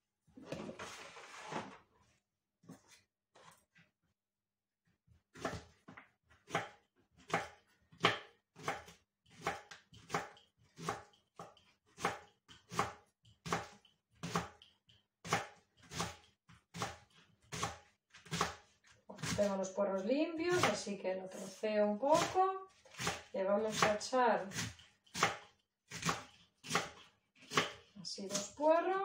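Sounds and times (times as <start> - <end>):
knife chopping on cutting board: 5.3 - 14.6, 15.2 - 19.4, 20.5 - 20.8, 21.4 - 28.6.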